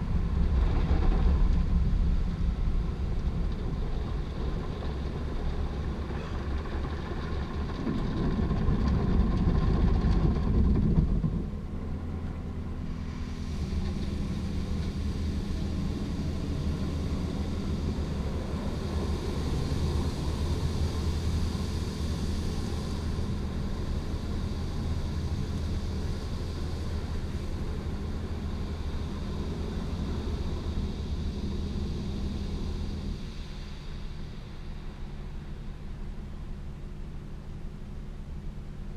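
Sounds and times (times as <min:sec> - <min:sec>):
low machine hum: 0:00.0 - 0:38.9
hissing spray: 0:13.1 - 0:35.5.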